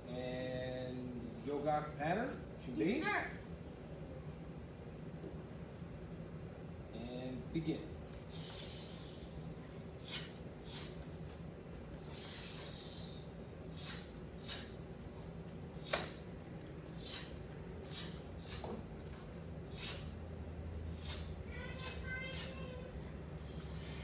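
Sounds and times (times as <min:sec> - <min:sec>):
child's hissing exhales: 0:08.3 - 0:11.0, 0:12.0 - 0:14.8, 0:17.0 - 0:18.8, 0:19.7 - 0:20.2, 0:20.9 - 0:22.7, 0:23.4 - 0:24.0.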